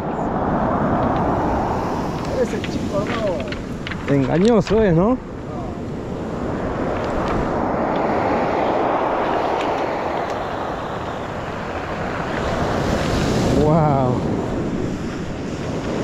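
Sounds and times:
surf on a pebble beach: 0:00.0 - 0:16.0
wind on the microphone: 0:00.0 - 0:16.0
person speaking: 0:02.3 - 0:05.8.

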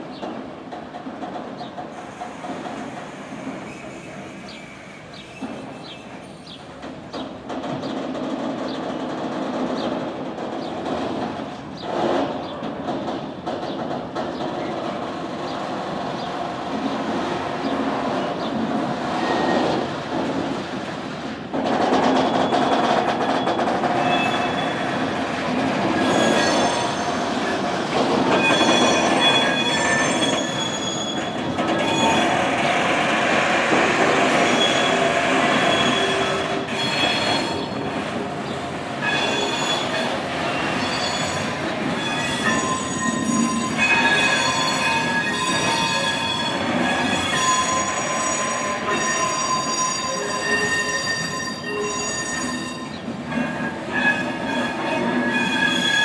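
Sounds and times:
train wheels squealing: 0:01.9 - 0:07.2, 0:19.1 - 0:20.2, 0:22.0 - 0:56.0.

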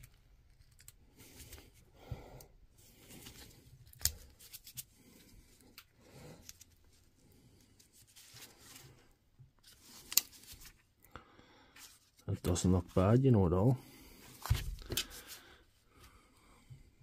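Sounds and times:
small clicks from hands working: 0:00.0 - 0:01.6, 0:10.0 - 0:10.8.

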